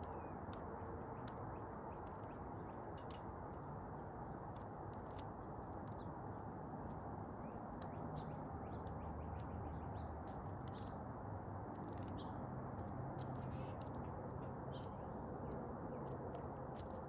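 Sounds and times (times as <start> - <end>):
faint bird chirps: 11.7 - 15.1.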